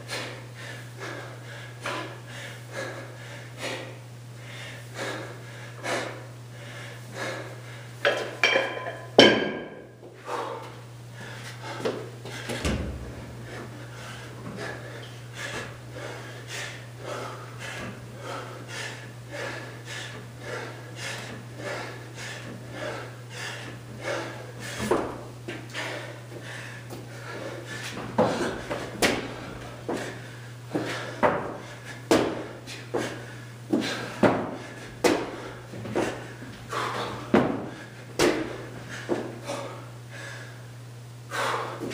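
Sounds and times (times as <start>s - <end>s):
steady low hum: 0.0s - 41.9s
kettlebell clanking down: 8.0s - 9.9s.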